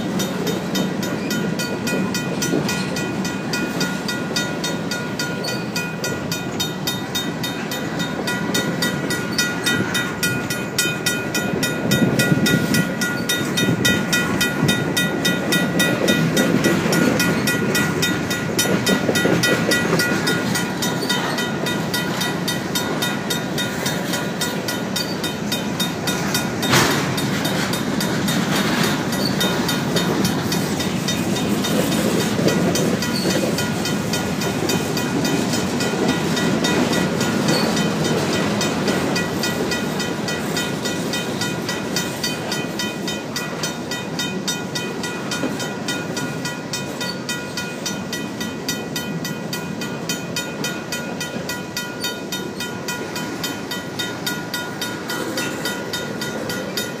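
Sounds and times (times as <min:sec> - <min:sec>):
crossing bell ringing: 0:00.0 - 0:57.0
train wheels rumbling on rail: 0:00.0 - 0:57.0
sharp metal clank: 0:26.6 - 0:27.4.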